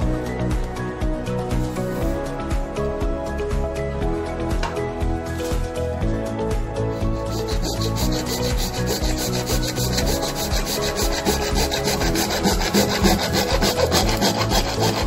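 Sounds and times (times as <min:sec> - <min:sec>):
plastic pipe scraped by hand: 0:07.0 - 0:15.0.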